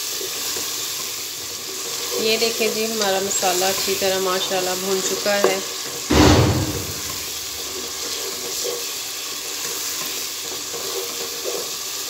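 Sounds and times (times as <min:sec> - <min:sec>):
masala sizzling in oil: 0:00.0 - 0:12.0
loud knock: 0:06.1 - 0:07.3.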